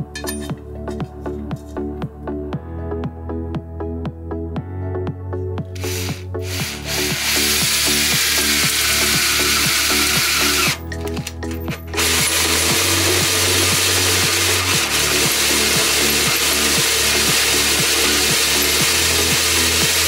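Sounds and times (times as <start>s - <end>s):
drill grinding through metal: 5.8s - 20.0s.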